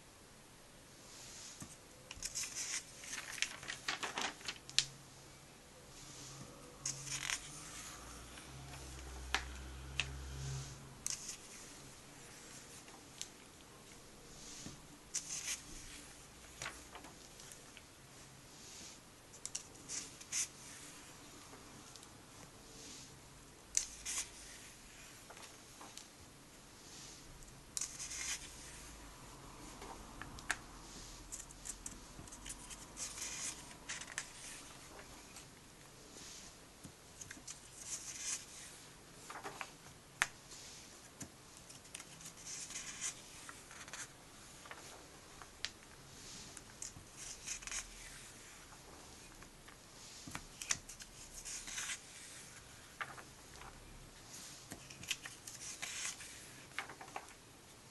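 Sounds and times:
paper pages rustling: 0:01.6 - 0:04.9, 0:06.8 - 0:13.4, 0:14.4 - 0:17.9, 0:23.8 - 0:26.1, 0:27.8 - 0:28.9, 0:31.3 - 0:35.5, 0:37.2 - 0:40.3, 0:41.0 - 0:45.8, 0:46.4 - 0:57.4.

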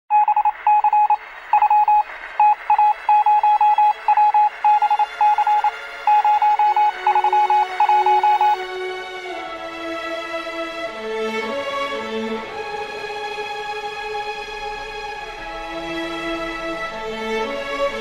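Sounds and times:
morse code beeps: 0:00.1 - 0:08.6.

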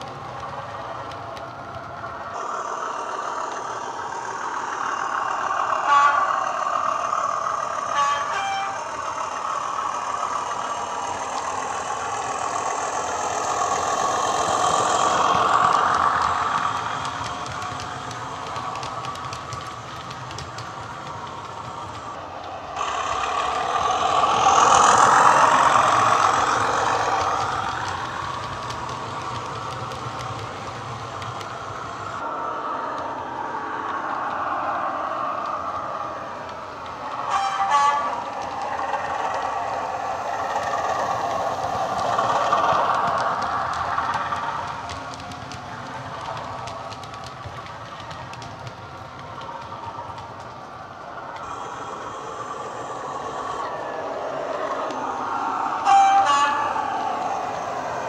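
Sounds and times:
two-note train horn toots: 0:05.8 - 0:06.4, 0:07.9 - 0:08.9, 0:37.3 - 0:38.2, 0:55.8 - 0:56.8.

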